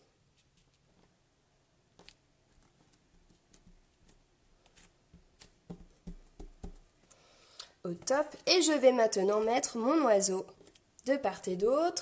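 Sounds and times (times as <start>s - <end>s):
fingers tapping and clicking paper: 2.0s - 6.9s.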